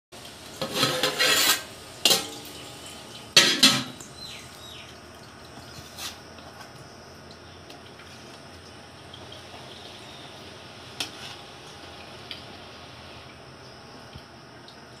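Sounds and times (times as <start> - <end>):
pot lid scraping and clanking: 0.6 - 2.3.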